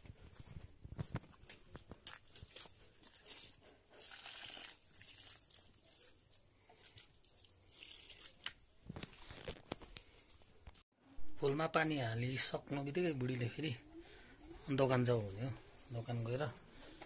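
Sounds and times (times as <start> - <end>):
clicks and rustles: 0.0 - 3.5
water splashing onto plants: 2.0 - 6.1, 6.8 - 8.6.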